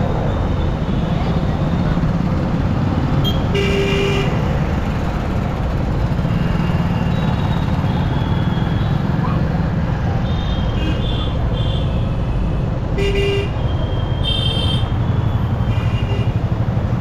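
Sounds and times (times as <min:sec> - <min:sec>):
vehicle horn honking: 0:14.2 - 0:14.9.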